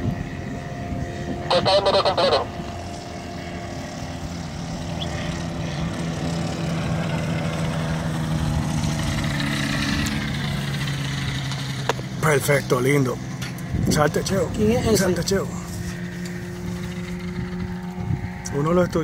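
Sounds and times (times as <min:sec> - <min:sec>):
light aircraft engine drone: 0:00.0 - 0:19.0.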